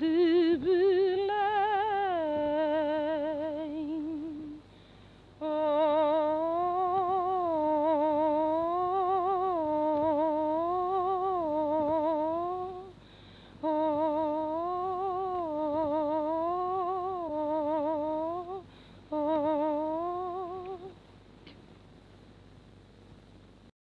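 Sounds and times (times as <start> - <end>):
woman humming a lullaby: 0.0 - 4.7, 5.4 - 13.0, 13.6 - 21.0.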